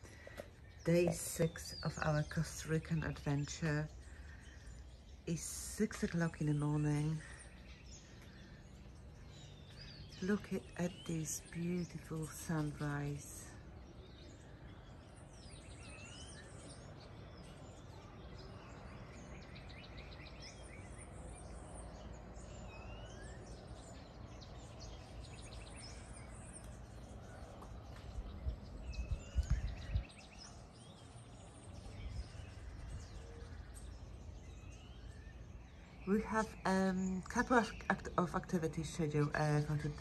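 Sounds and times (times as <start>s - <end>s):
birds chirping and trilling: 0.0s - 40.0s
faint outdoor background: 0.0s - 40.0s
low rumbling on microphone: 23.2s - 36.9s.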